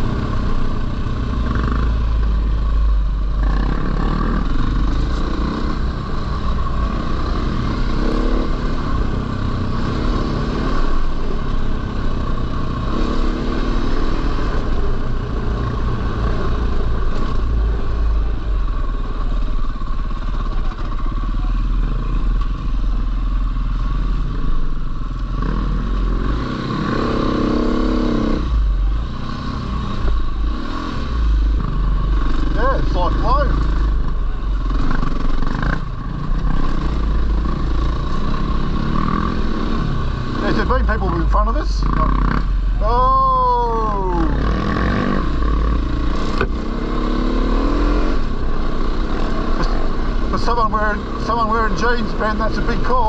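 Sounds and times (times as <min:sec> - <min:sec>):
dirt bike engine revving: 0:03.2 - 0:17.9, 0:25.3 - 0:53.0.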